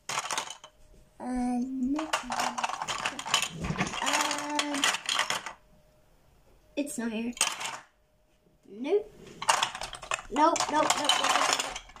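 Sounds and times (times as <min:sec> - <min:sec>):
plastic bricks clattering: 0:00.0 - 0:00.8, 0:01.9 - 0:05.6, 0:07.4 - 0:07.9, 0:09.4 - 0:12.0.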